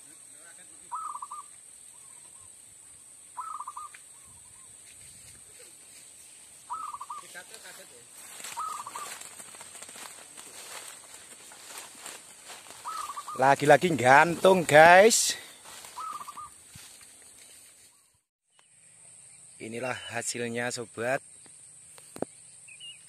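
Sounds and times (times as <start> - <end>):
dove cooing trills: 0.9 - 2.5, 3.4 - 4.4, 6.7 - 7.4, 8.4 - 9.6, 11.6 - 13.7, 15.6 - 16.6
wings fluttering: 3.4 - 18.2.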